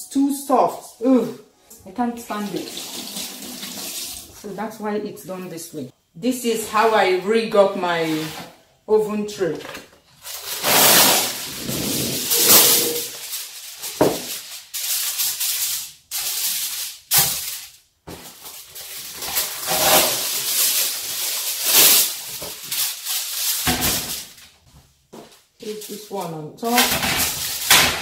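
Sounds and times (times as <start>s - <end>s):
aluminium foil crinkling: 9.6s - 24.6s, 25.3s - 28.0s.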